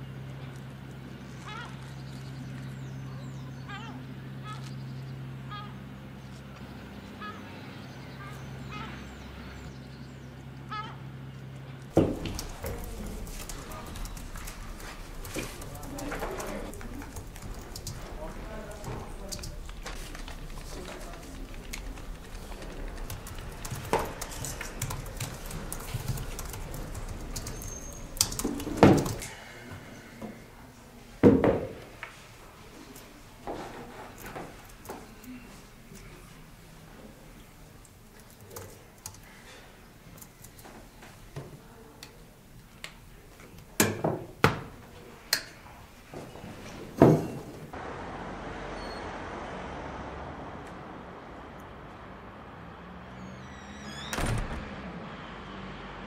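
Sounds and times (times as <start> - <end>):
street ambience hiss: 0.0 - 31.2, 44.9 - 54.1
objects knocking on wooden desk: 12.0 - 16.5
typing on laptop keyboard: 12.0 - 29.2, 38.2 - 39.4.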